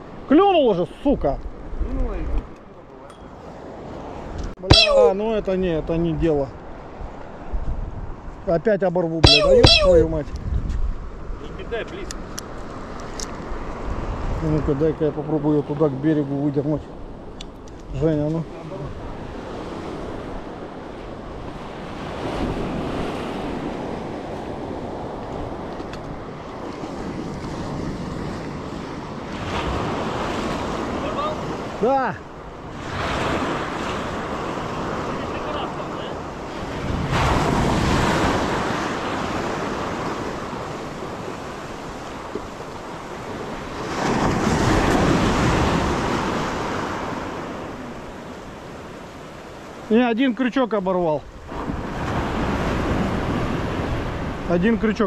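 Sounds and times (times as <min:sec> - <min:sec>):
wind buffeting microphone: 0:05.2 - 0:08.5, 0:09.9 - 0:11.7
sea waves washing onto shore: 0:18.3 - 0:54.6.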